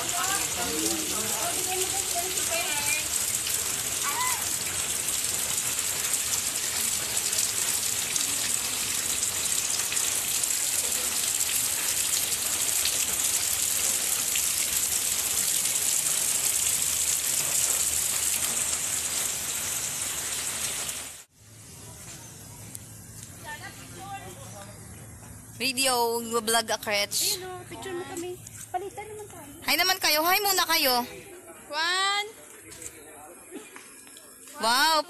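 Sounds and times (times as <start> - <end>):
rain falling steadily: 0.0 - 27.9.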